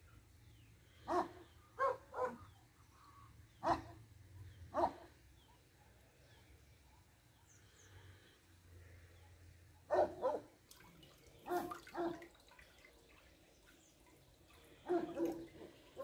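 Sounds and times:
dog barking: 1.1s - 2.6s, 3.6s - 4.0s, 4.7s - 5.6s, 9.9s - 10.5s, 11.5s - 12.3s, 14.8s - 16.0s.

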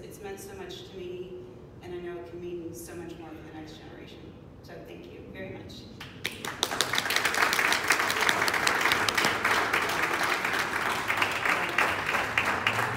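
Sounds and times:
audience applauding: 6.0s - 12.9s.

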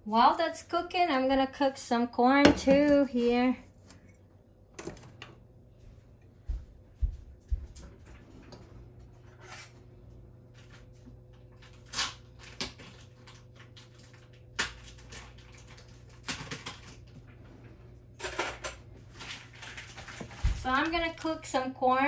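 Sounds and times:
faint steady hum: 0.0s - 22.0s
kitchenware knocks and clinks: 2.4s - 2.9s.

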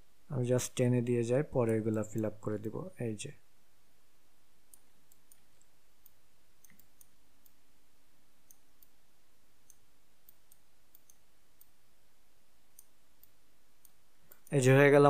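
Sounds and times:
faint steady hiss and hum: 0.0s - 15.0s
computer mouse clicks: 4.7s - 7.6s, 9.6s - 11.8s, 12.7s - 14.6s.

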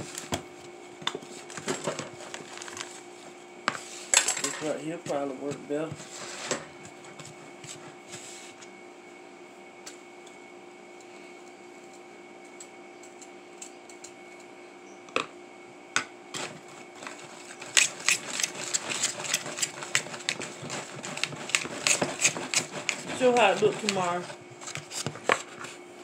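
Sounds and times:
spoon scraping plastic bowl: 16.4s - 25.6s.

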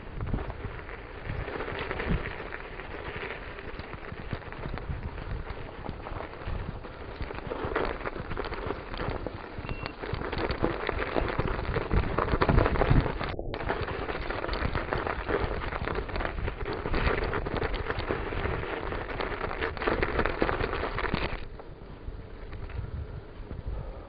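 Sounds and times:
bike rattling over surface: 0.0s - 21.7s
bike tyres crackling on snow: 0.0s - 24.0s
wind on microphone: 0.0s - 24.0s.

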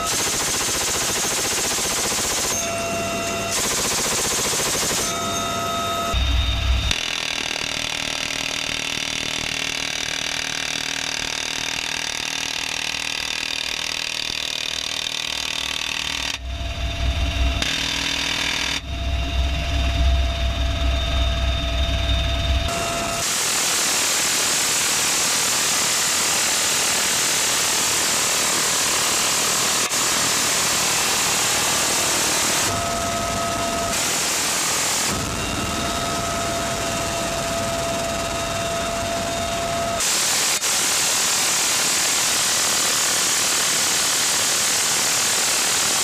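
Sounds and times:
heavy machine gun bursts: 0.0s - 2.8s, 3.5s - 5.3s
minigun firing rapid bursts: 0.0s - 2.8s, 3.5s - 5.3s, 17.6s - 18.8s
helicopter rotor and cabin noise: 0.0s - 46.0s.

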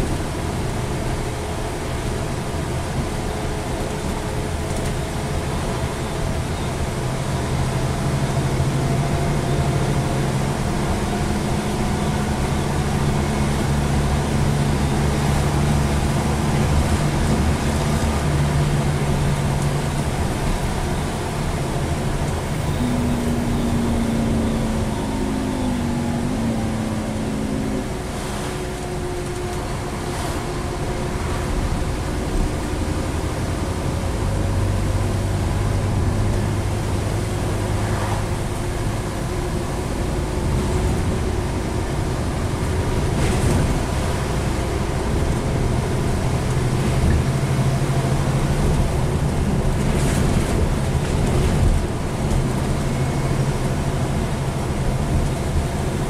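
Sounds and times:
diesel bus engine: 0.0s - 56.0s
gearbox whine climbing: 22.3s - 29.8s.

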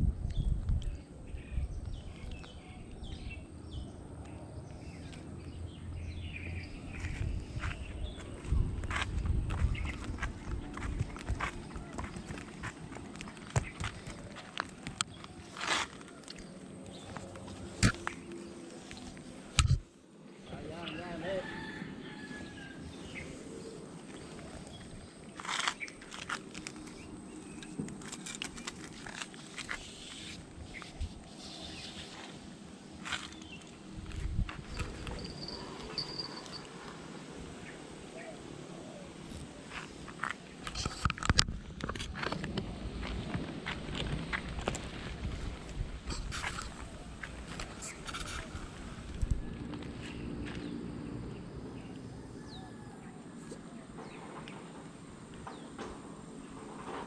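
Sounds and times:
wind rumble on microphone: 0.0s - 4.1s, 5.5s - 14.2s, 33.8s - 35.6s, 40.7s - 51.8s
low outdoor background: 0.0s - 57.0s
small birds chirping: 0.1s - 19.5s, 22.1s - 40.9s
small sharp clicks and crackles: 27.6s - 30.3s.

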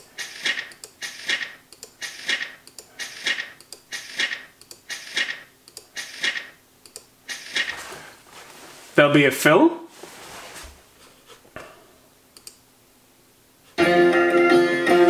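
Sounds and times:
page-turn swishes: 9.9s - 10.8s.

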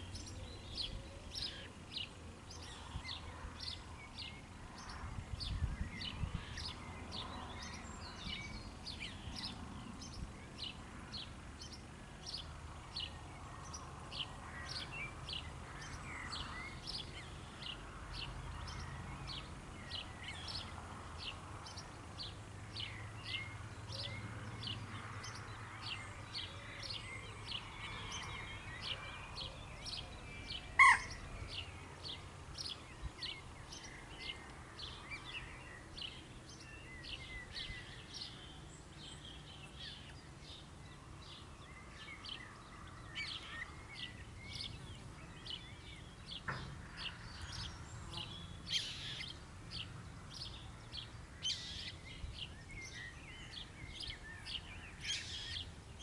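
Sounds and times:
birds chirping: 0.0s - 56.0s
loud single bird call: 30.8s - 31.2s.

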